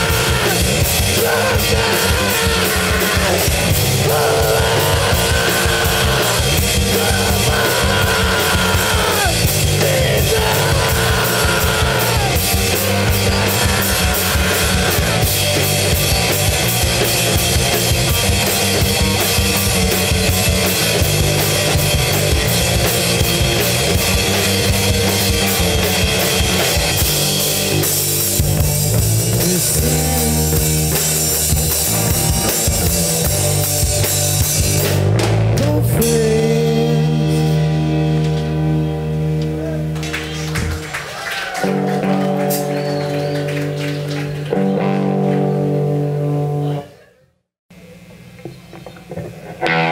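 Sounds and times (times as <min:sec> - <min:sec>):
screamed lead vocal: 0:00.0 - 0:16.1
drum kit: 0:00.0 - 0:46.4
bass guitar: 0:00.0 - 0:49.9
distorted electric guitar: 0:00.0 - 0:49.9.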